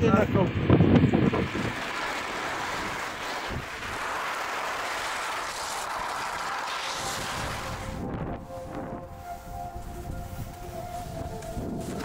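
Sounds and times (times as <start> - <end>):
wind over microphone: 0.0 - 4.4, 6.9 - 12.0
skis running through snow: 1.0 - 12.0.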